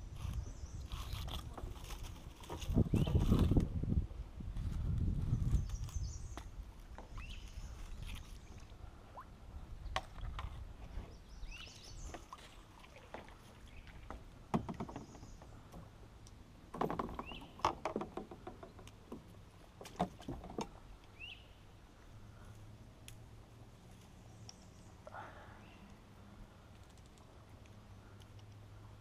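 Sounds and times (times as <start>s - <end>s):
knocks against kayak hull: 14.5s - 15.3s.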